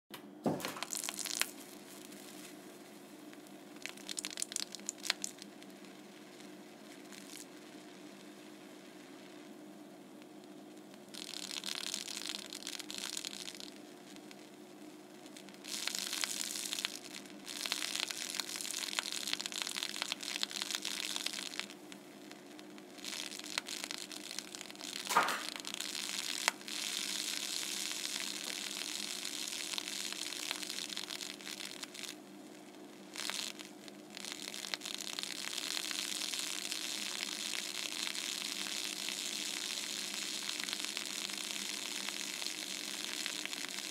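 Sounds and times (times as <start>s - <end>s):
laser burning plastic sizzle: 0.4s - 43.9s
short sharp pop: 25.1s - 25.6s.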